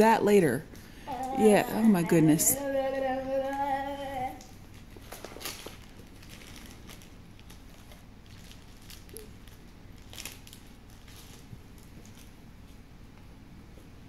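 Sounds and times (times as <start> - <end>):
faint steady hum: 0.0 - 14.0
card wrapper rustling and crinkling: 4.5 - 12.7.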